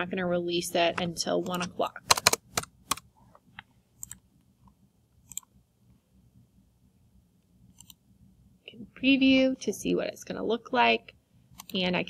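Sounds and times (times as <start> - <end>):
faint room noise: 0.0 - 12.0
mouse and keyboard clicks: 1.4 - 3.1, 4.0 - 4.2, 7.8 - 8.0.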